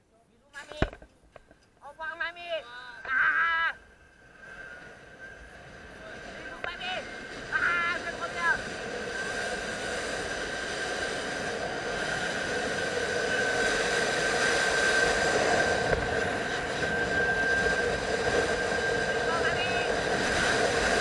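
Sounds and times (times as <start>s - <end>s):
pulleys whining on steel cable: 3.1s - 21.0s
rushing noise: 3.3s - 21.0s.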